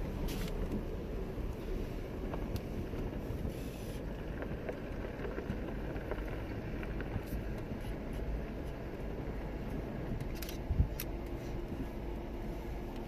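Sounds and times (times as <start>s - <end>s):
engine and tyres rumbling: 0.0s - 13.0s
small rattles and clicks: 9.6s - 11.4s.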